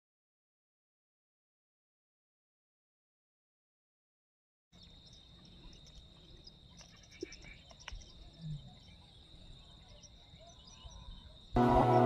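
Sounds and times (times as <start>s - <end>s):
faint clicks: 5.7s - 8.2s.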